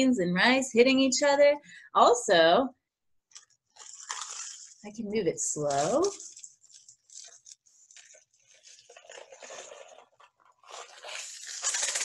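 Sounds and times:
rain stick grains trickling: 3.3s - 4.9s.

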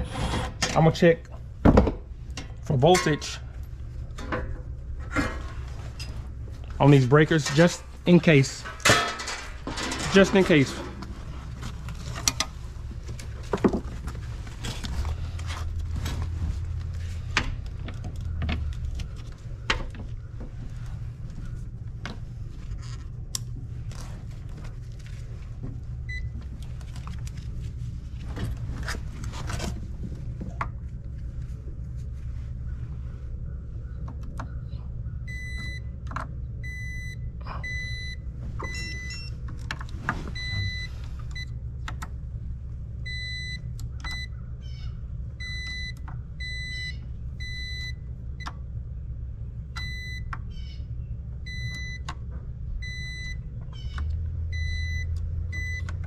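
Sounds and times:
steady low hum: 0.0s - 56.0s
electrical tester beeping: 35.3s - 35.9s, 36.6s - 39.3s, 40.4s - 41.5s, 43.1s - 44.3s, 45.4s - 48.5s, 49.8s - 50.3s, 51.5s - 52.1s, 52.8s - 53.4s, 54.5s - 56.0s.

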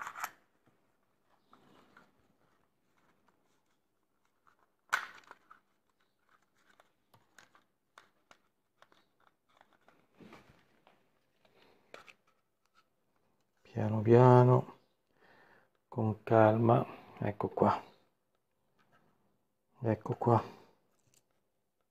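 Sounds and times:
plastic creaking and rustling: 0.0s - 13.3s
plastic snap: 4.9s - 5.4s.

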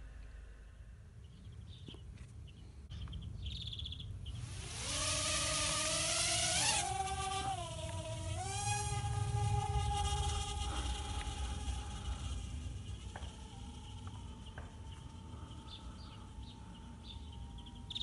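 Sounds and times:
quadcopter propellers buzzing whine: 4.2s - 18.0s.

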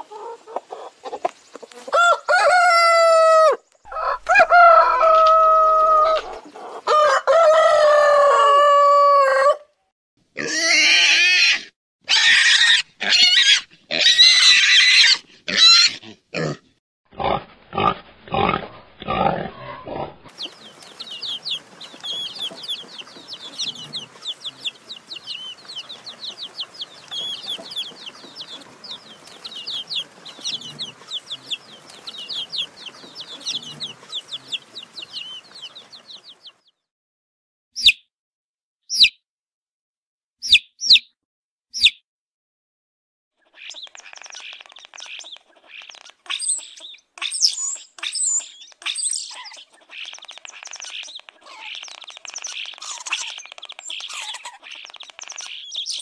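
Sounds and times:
high animal squeals: 10.4s - 16.1s
chick peeping in egg: 19.7s - 36.7s, 38.9s - 39.2s, 40.4s - 41.1s, 43.5s - 56.0s
chicks chirping: 20.3s - 36.8s, 38.9s - 39.2s, 40.4s - 41.1s, 43.5s - 56.0s.

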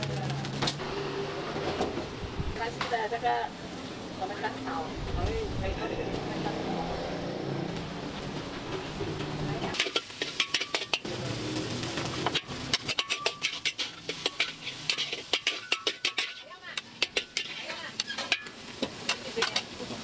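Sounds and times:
metal spatula scraping in wok: 8.8s - 20.0s.

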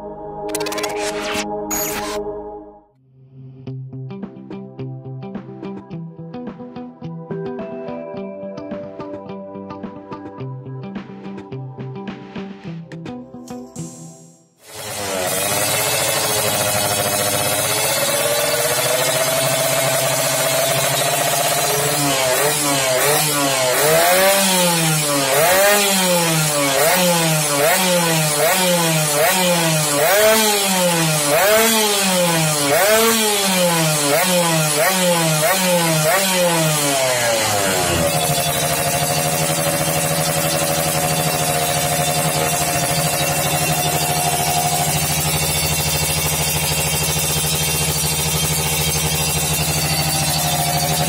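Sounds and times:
motorcycle engine revving: 14.6s - 51.0s.

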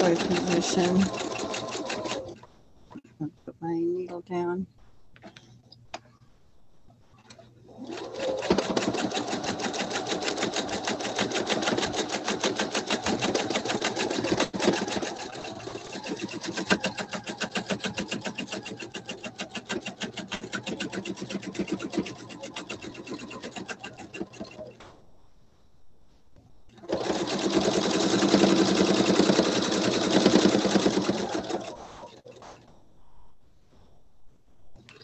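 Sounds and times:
sewing machine running: 0.0s - 2.4s, 7.7s - 24.8s, 26.8s - 32.4s.

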